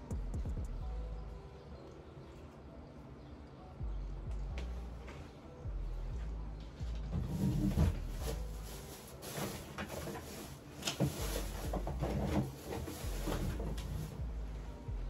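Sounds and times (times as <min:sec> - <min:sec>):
rustling: 0:07.0 - 0:14.8
objects knocking and clattering: 0:09.2 - 0:14.0.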